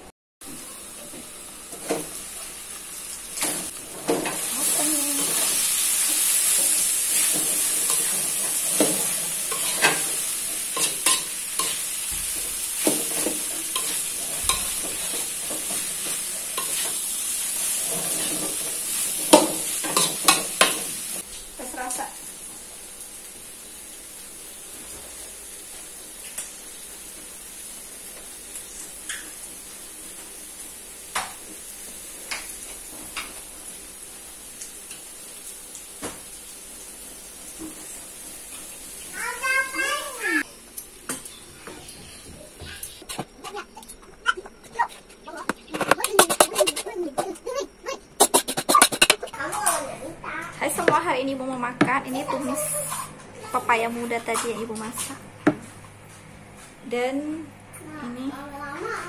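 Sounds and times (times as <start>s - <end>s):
food sizzling in a pan: 0.4s - 55.8s, 56.9s - 59.0s
spatula scraping a pan: 4.1s - 21.0s, 44.3s - 49.5s.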